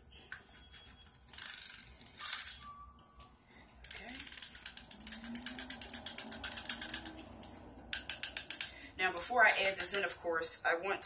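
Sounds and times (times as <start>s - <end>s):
mini frother clicking rattle: 3.9s - 7.2s, 8.0s - 8.7s.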